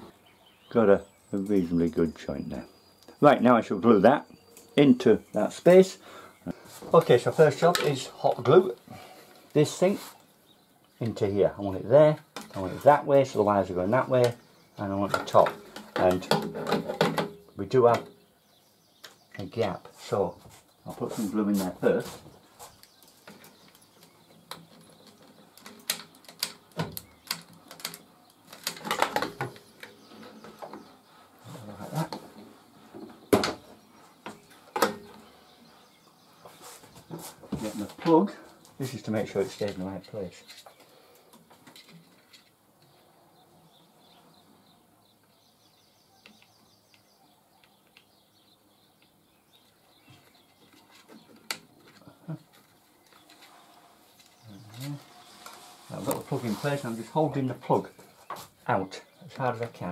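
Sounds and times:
rustling and handling: 19.0 - 42.6, 49.6 - 59.9.

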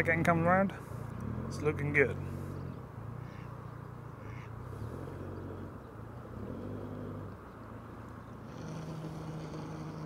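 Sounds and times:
boat engine running: 8.2 - 10.0.

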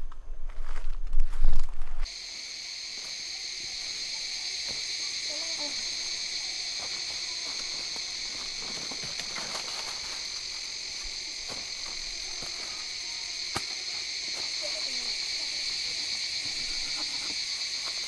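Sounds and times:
insects chorus: 2.0 - 18.0
footsteps through dry leaves: 6.8 - 12.7.

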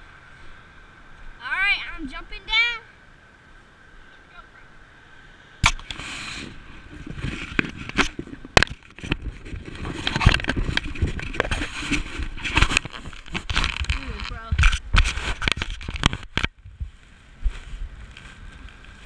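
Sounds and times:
bumps and rubbing: 5.6 - 18.4
wind rumble on microphone: 5.6 - 19.0.

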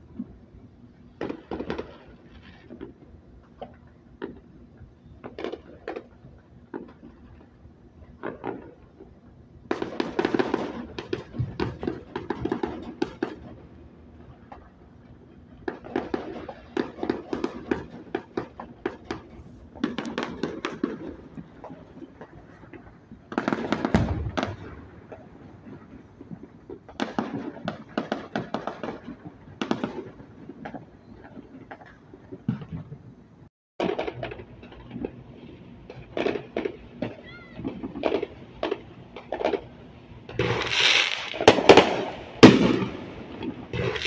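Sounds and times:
fireworks crackling and popping: 0.0 - 44.0
firework boom: 23.7 - 25.0, 41.4 - 43.1.

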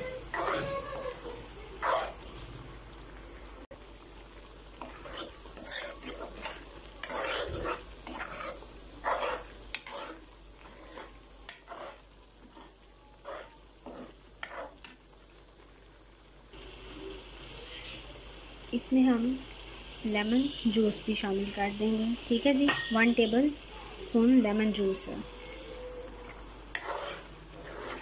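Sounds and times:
spoon scraping a pan: 0.0 - 2.5, 4.7 - 15.1, 22.6 - 23.3, 25.0 - 28.0
oil sizzling: 0.0 - 28.0.

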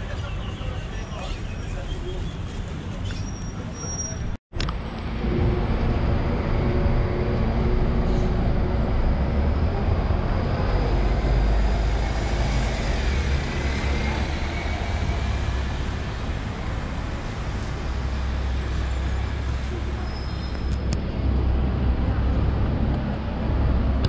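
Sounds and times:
street traffic: 0.0 - 24.0
low rumble: 4.6 - 17.1
heavy vehicle engine running: 4.7 - 24.0.

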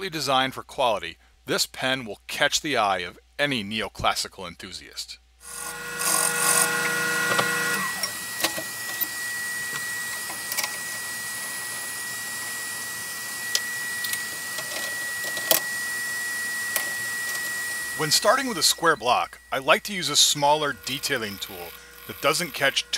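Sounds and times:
lathe high whine: 5.4 - 22.9
wood lathe cutting wood: 5.4 - 22.9.

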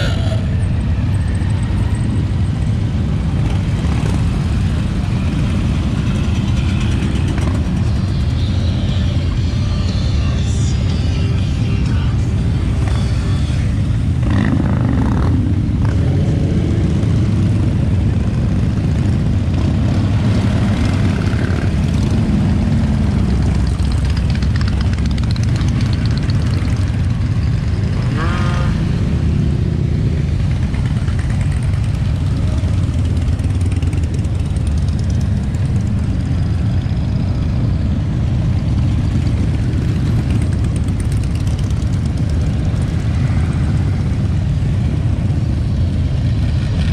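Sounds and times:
motorcycles riding past: 0.0 - 46.9
motorcycle engine revving: 12.7 - 37.3, 38.5 - 46.9.

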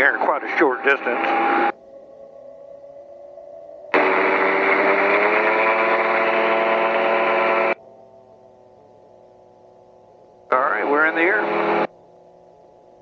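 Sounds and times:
faint engine hum: 0.0 - 13.0
aircraft engine at full power: 3.9 - 7.8, 10.5 - 11.9.

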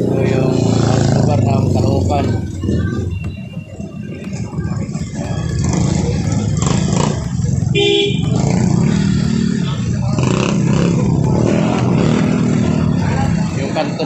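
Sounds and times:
background voices: 0.0 - 7.7
motorcycle engine idling: 5.4 - 11.1
horn beep: 7.7 - 8.4.

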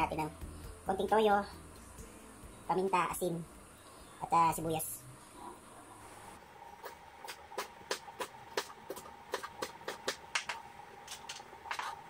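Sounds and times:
faint high hum: 0.0 - 7.2
knife chopping on cutting board: 6.8 - 10.6.

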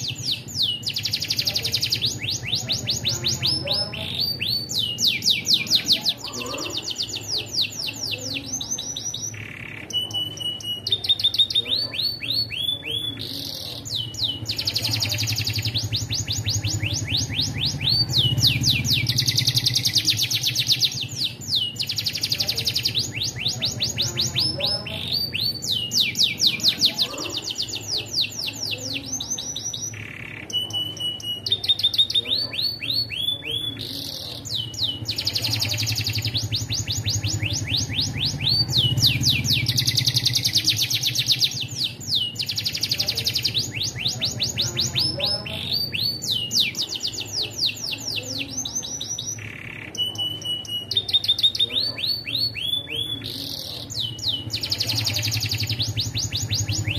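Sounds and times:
canary singing trills: 0.0 - 56.9.

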